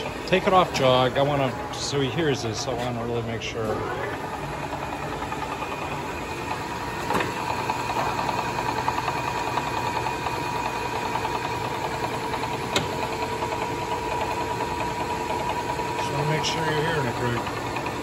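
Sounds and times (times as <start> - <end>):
lathe running with ticking gears: 0.0 - 18.0.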